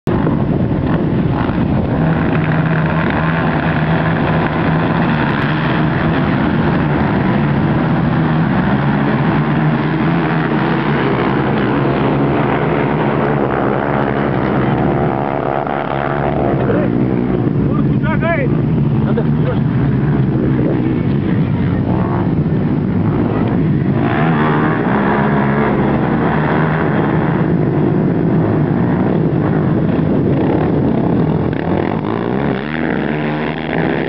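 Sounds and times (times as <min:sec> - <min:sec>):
quad bike engines revving: 0:00.0 - 0:34.0.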